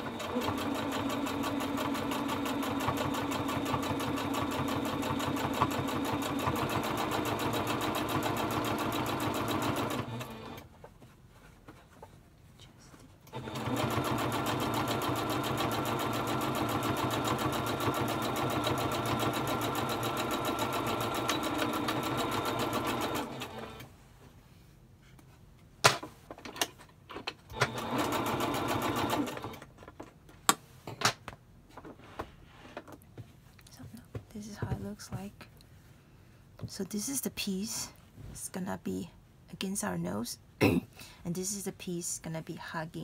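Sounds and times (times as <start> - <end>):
sewing machine stitching: 0.0 - 10.7, 13.3 - 23.9, 27.5 - 29.7
sewing machine clicks: 13.3 - 23.9.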